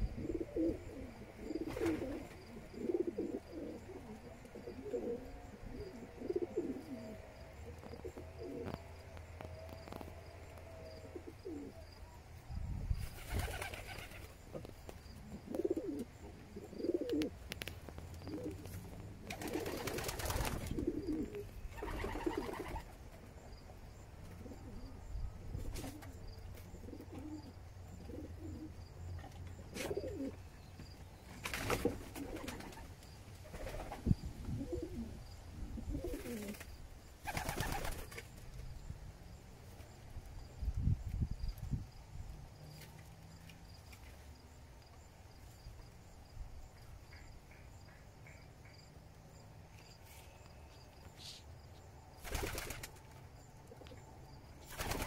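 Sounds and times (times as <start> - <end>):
pigeons cooing: 0.0 - 9.1, 10.7 - 11.9, 13.1 - 23.0, 24.3 - 28.8, 29.7 - 30.4, 31.5 - 32.9, 33.5 - 36.7.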